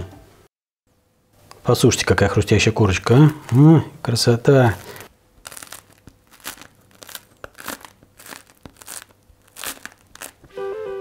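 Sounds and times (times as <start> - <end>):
bread crust crackling: 2.8 - 10.5
music: 10.5 - 11.0.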